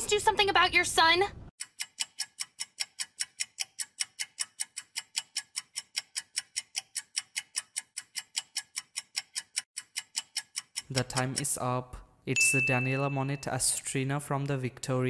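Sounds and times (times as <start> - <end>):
clock-like ticking: 1.6 - 11.7.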